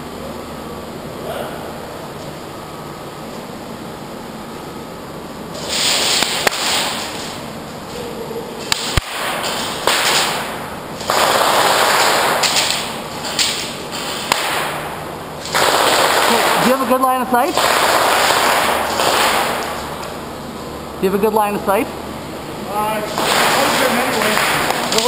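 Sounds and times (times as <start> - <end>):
airsoft gun shots: 5.7 - 7.1, 8.7 - 13.0, 14.2 - 16.9, 17.5 - 19.9, 23.1 - 25.0.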